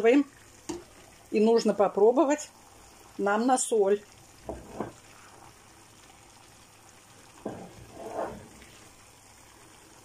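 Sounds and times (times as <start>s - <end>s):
faint simmer: 0.0s - 10.0s
spatula stirring in a frying pan: 4.4s - 5.2s, 7.2s - 9.1s.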